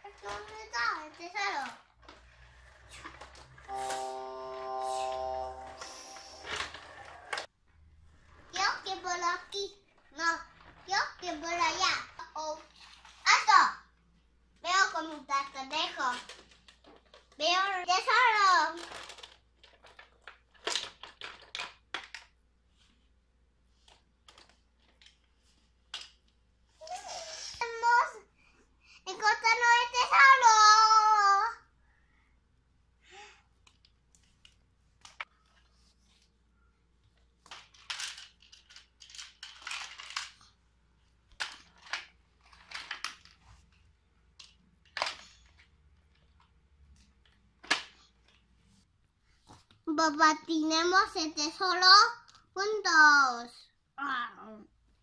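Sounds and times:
plastic toy parts clicking and clattering: 0:00.0 - 0:03.7, 0:15.7 - 0:22.4, 0:23.8 - 0:26.4, 0:37.4 - 0:40.6, 0:41.2 - 0:43.5, 0:44.2 - 0:48.4
plastic toy clicking and rattling: 0:18.6 - 0:22.3, 0:37.4 - 0:40.5, 0:41.3 - 0:43.4, 0:44.4 - 0:46.4.

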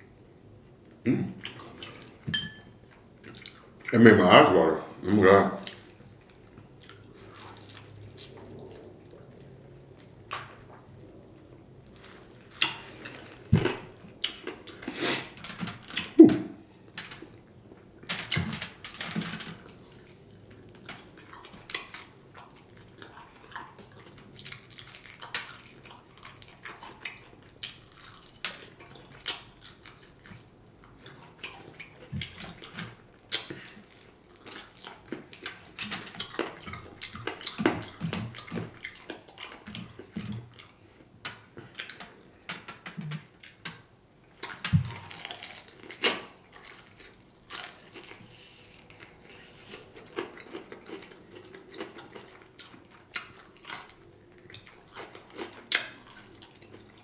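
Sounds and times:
wet chewing and lip-smacking: 0:19.6 - 0:43.6, 0:44.4 - 0:57.0.

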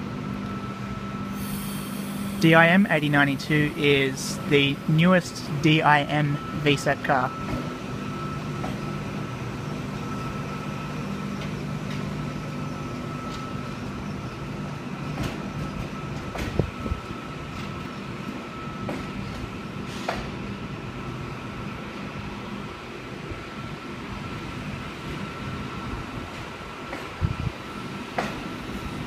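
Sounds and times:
thin steady whine: 0:00.0 - 0:19.8
electric train humming: 0:00.0 - 0:29.0.

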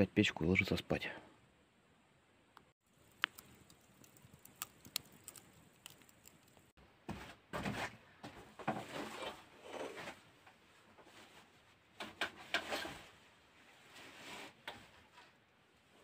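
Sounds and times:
crunching and rustling: 0:02.8 - 0:06.8.

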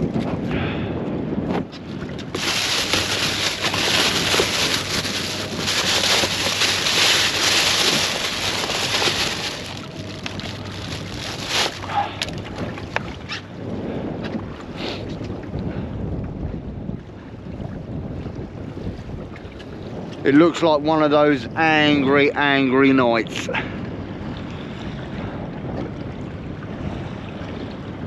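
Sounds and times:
outdoor wind noise: 0:00.0 - 0:22.5, 0:23.5 - 0:28.0
plastic bag crinkling: 0:02.3 - 0:12.0.

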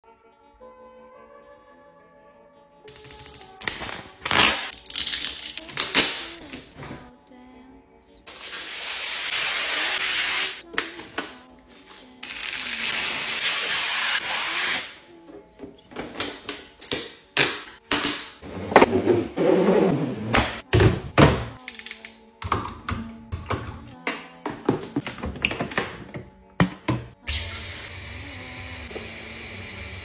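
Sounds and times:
background music: 0:00.0 - 0:30.0
plastic parts clicking: 0:21.6 - 0:22.8.

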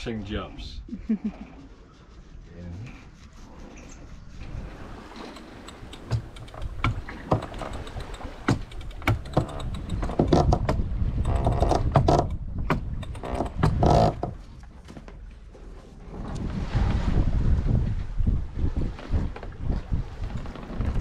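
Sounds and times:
winch ratcheting clicks: 0:05.1 - 0:14.3.

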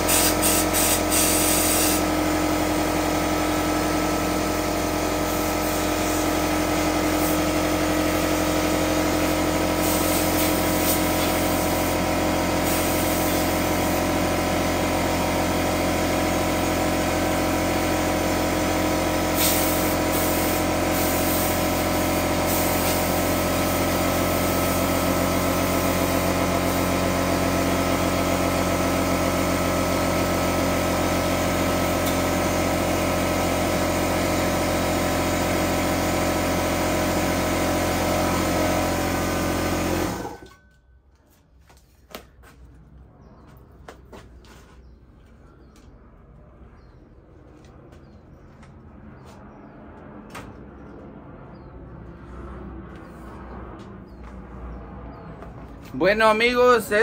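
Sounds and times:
compressed air hisses: 0:00.0 - 0:02.0, 0:09.8 - 0:12.0, 0:19.3 - 0:21.7
air compressor running: 0:00.0 - 0:40.6.

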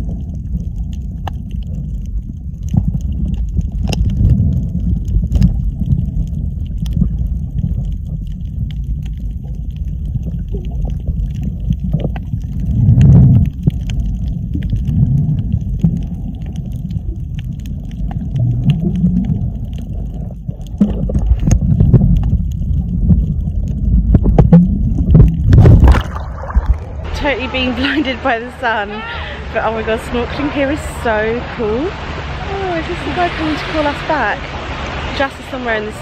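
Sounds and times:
muffled underwater water rumble: 0:00.0 - 0:36.0
faint clicks: 0:00.1 - 0:25.4.

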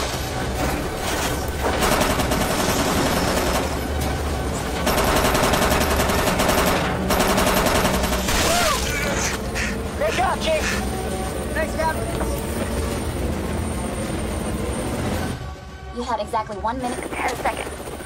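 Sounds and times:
machine gun firing bursts: 0:01.6 - 0:04.0, 0:04.7 - 0:08.5.

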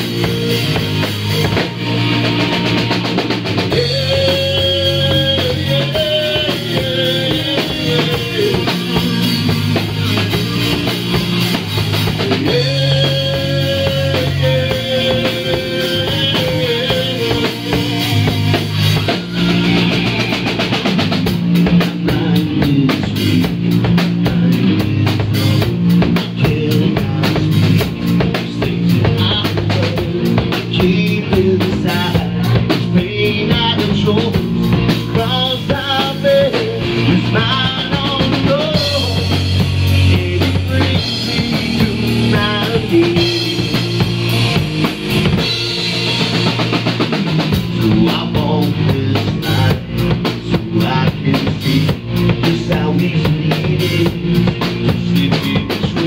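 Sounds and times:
drum kit: 0:00.0 - 0:56.0
electric bass: 0:00.0 - 0:56.0
man singing: 0:03.1 - 0:10.4, 0:11.5 - 0:20.2, 0:21.6 - 0:44.4, 0:46.4 - 0:56.0.

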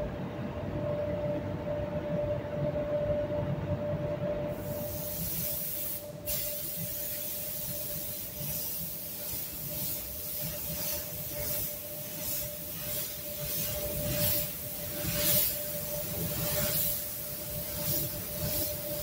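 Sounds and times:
steady hum: 0:00.0 - 0:19.0
spray gun hissing: 0:04.6 - 0:19.0.

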